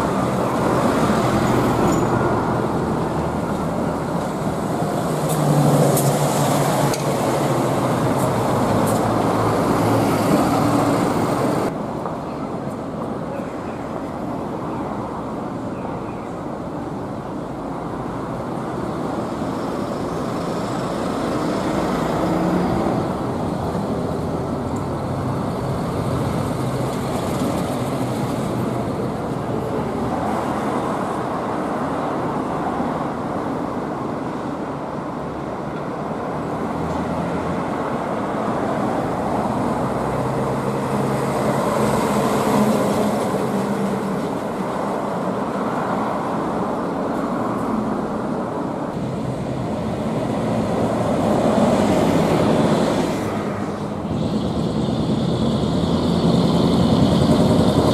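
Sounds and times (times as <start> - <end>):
diesel trucks driving past: 0.0 - 13.0, 16.4 - 57.9
loud truck exhaust: 49.1 - 57.9.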